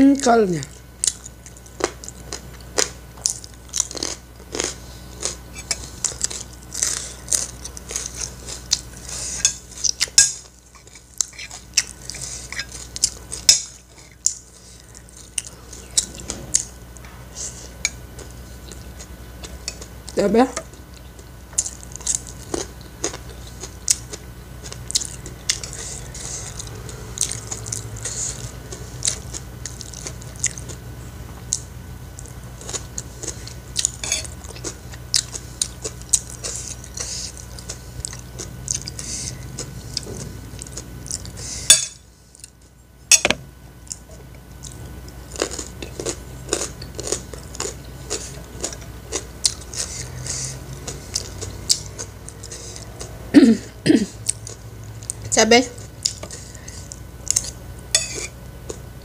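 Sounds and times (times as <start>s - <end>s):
chewing: 1.0s - 41.4s, 43.8s - 53.2s, 54.1s - 58.8s
spoon scraping on plate: 57.9s - 58.4s.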